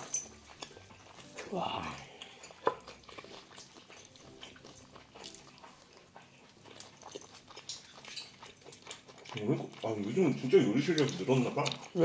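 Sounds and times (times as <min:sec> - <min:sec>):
wet chewing and mouth smacks: 0:00.0 - 0:12.0.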